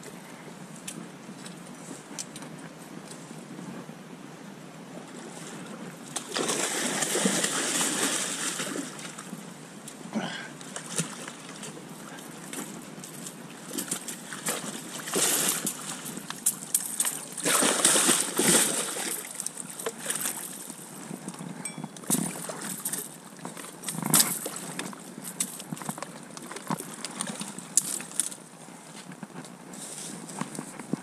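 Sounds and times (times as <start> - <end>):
water splashing and sloshing: 5.0 - 29.2.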